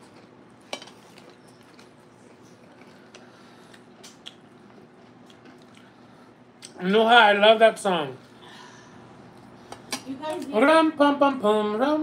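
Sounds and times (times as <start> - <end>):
soft chewing: 0.0 - 6.8, 9.0 - 10.5.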